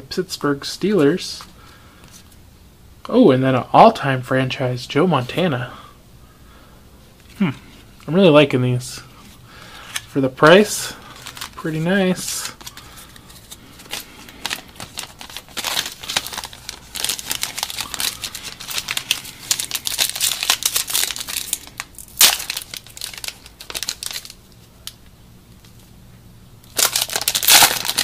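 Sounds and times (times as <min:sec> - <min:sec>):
foil wrapper crinkling: 0:09.6 - 0:25.0, 0:26.7 - 0:28.0.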